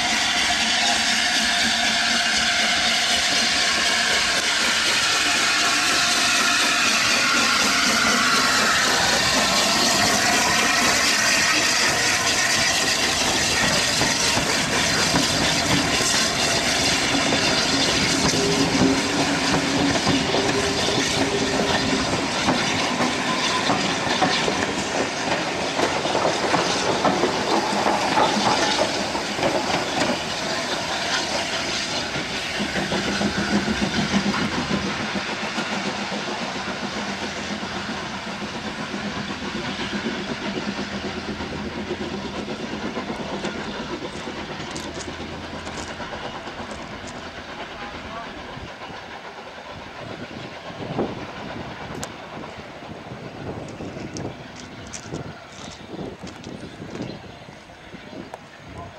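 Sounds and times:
steam locomotive hissing: 0.0s - 58.9s
wheels clattering over rail joints: 5.8s - 48.2s.

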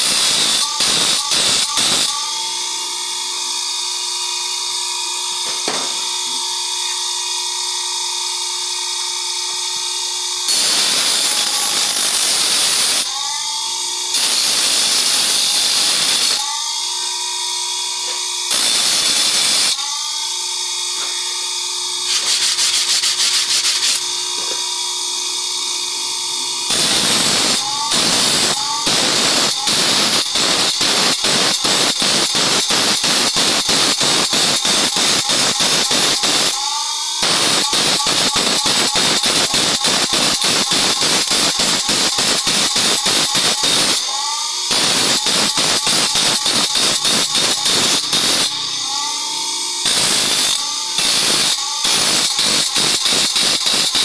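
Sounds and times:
grinder wheel grinding saw teeth: 0.0s - 54.0s.

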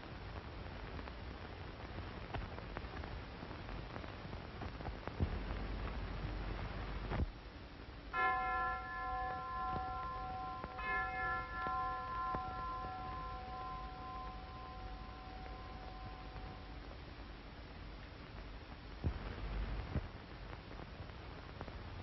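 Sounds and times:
old film soundtrack hiss and crackle: 0.0s - 22.0s
bell ringing: 8.2s - 16.8s.

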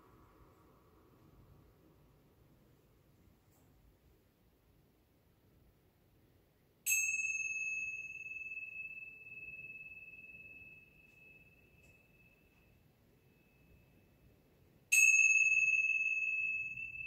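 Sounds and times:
metal chime ringing: 6.9s - 17.0s.

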